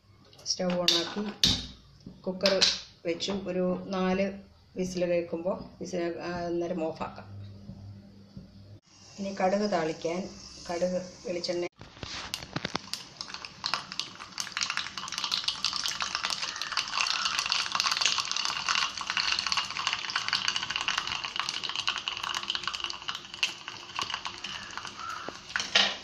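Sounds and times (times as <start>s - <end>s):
oil sizzling: 8.9s - 26.0s
mustard seeds popping in oil: 11.8s - 26.0s.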